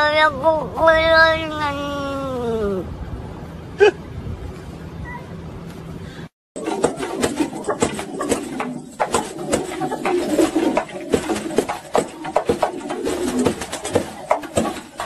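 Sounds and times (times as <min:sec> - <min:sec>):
pigeon wing slaps: 0:06.6 - 0:15.0
pigeons cooing: 0:06.6 - 0:15.0.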